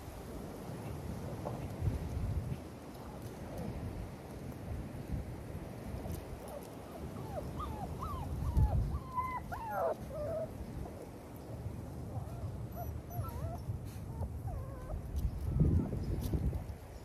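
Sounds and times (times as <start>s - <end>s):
puppies whimpering and yipping: 6.5s - 10.6s, 12.1s - 16.0s.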